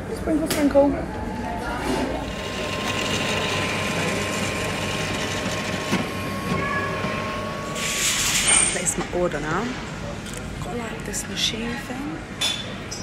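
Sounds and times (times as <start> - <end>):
coffee machine humming: 0.8 - 10.2
thin high steady tone: 5.8 - 9.0.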